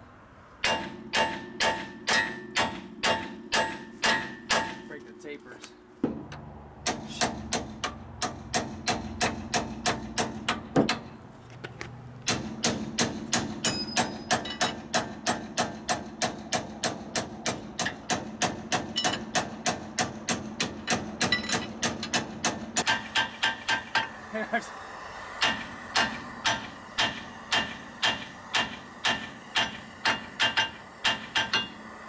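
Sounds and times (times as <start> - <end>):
hammer blows on steel: 6.8 - 11.0.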